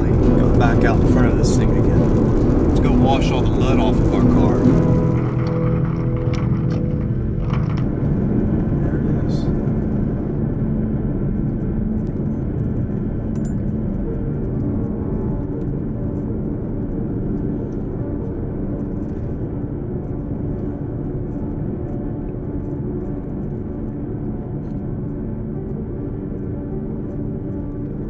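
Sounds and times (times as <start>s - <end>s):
vehicle driving on paved road: 0.0s - 10.4s.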